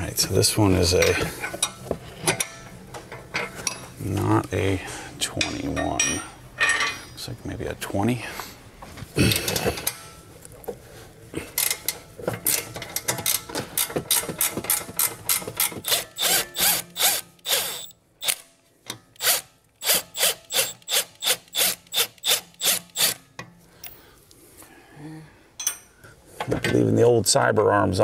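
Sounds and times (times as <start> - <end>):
cordless ratchet bursts: 15.8 - 18.5, 19.2 - 23.2.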